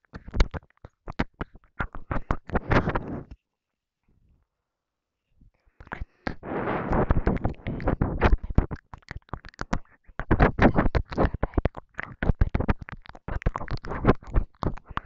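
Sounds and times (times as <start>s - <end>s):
wet mouth clicks and smacks: 0.1s - 2.8s, 7.1s - 15.0s.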